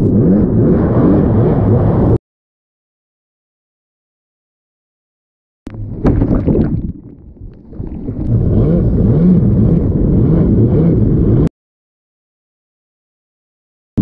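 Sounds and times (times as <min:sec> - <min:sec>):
jet ski engine revving: 0:00.0 - 0:02.2, 0:08.1 - 0:11.5
rushing water: 0:05.7 - 0:09.2
wind on microphone: 0:05.7 - 0:11.5.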